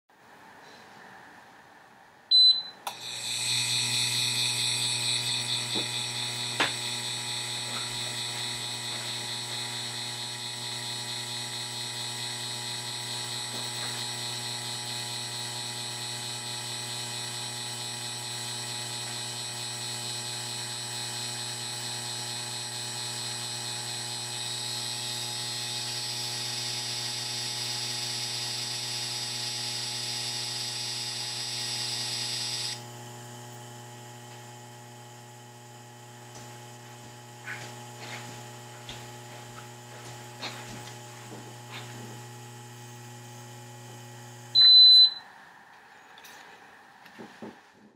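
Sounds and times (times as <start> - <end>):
steady electrical hum: 2.1 - 47.7
fixed electronic tones: 2.3 - 5.8, 44.6 - 45.3
induction cooktop high whine: 2.3 - 47.7.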